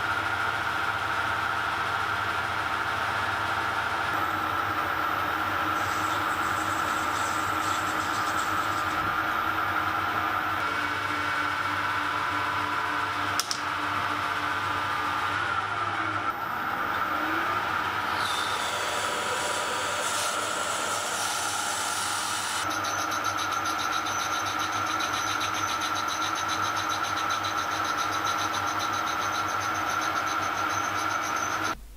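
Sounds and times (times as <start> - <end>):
lathe whining: 0.0 - 31.8
sharp click: 13.4 - 13.7.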